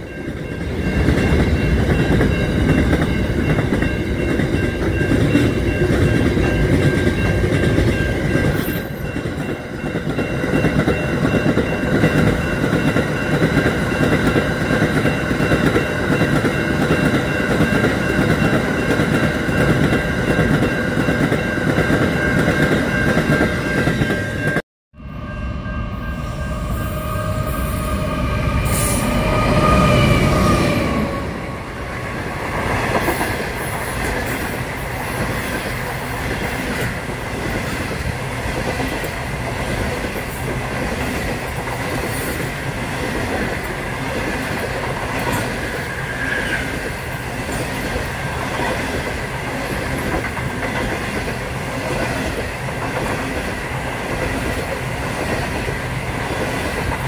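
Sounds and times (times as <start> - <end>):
train wheels rumbling on rails: 0.0 - 24.6, 25.9 - 57.0
steady high ringing tones: 0.0 - 29.1
diesel locomotive approaching: 0.0 - 57.0.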